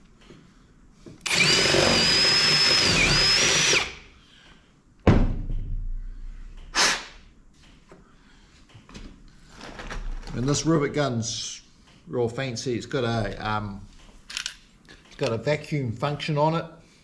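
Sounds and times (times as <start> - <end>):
power drill whining: 1.2 - 4.0.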